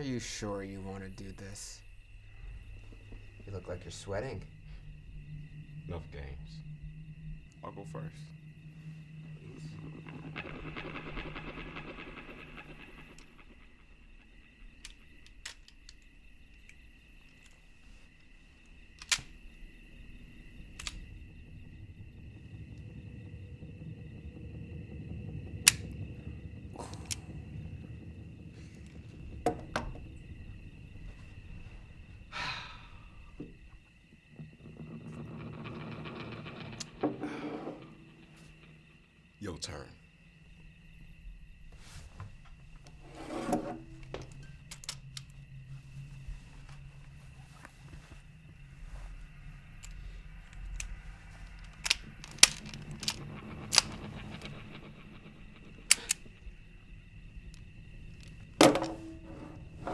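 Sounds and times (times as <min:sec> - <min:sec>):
faint steady hum: 0:00.0 - 0:59.9
long breathy exhale: 0:32.3 - 0:33.3.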